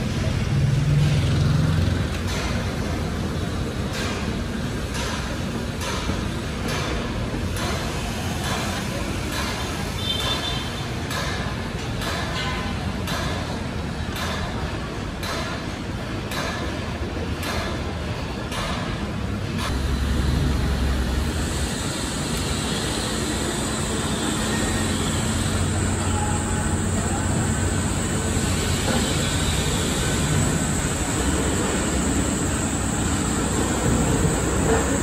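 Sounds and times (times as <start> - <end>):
vehicle engines rumbling: 0.0 - 35.0
traffic hiss: 19.2 - 35.0.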